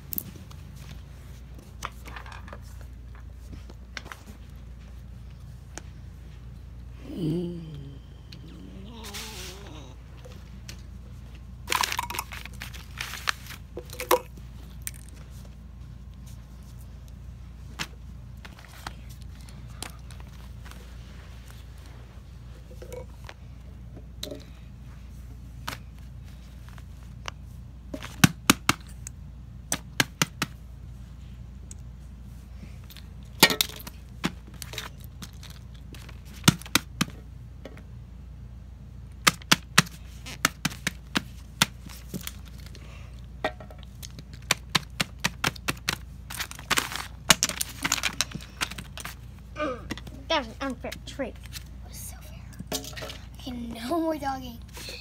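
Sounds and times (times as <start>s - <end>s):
low hum: 0.0s - 27.9s.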